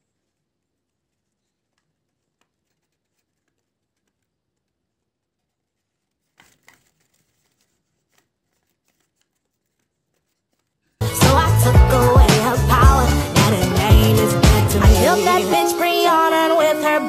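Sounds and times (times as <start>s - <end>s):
paper crinkle: 0.0s - 11.0s.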